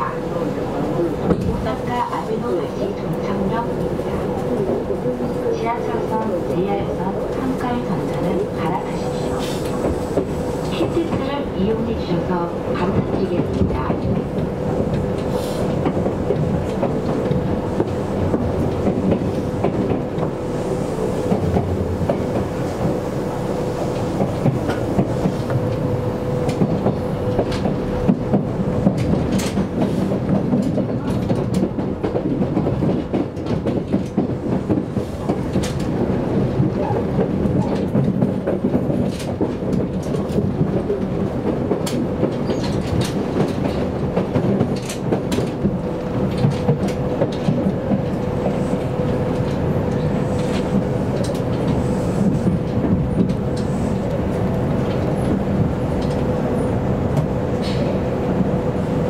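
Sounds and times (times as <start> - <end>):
train rumbling with hum: 0.0 - 59.0.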